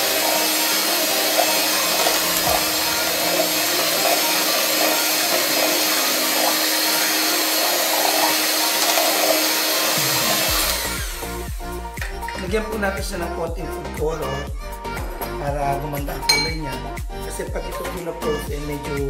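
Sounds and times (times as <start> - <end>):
electric hand mixer whirring: 0.0 - 12.4.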